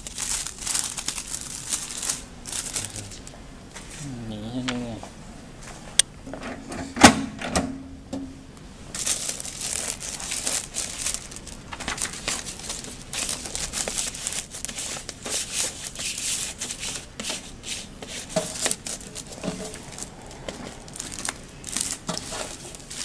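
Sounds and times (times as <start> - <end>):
laminating film crinkling: 0.0 - 3.8, 8.8 - 23.0.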